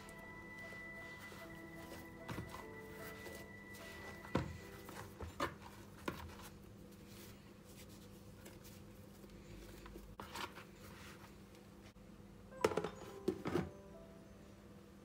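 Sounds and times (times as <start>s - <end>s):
hands rustling dough: 0.0s - 12.0s
faint steady hum: 0.0s - 15.0s.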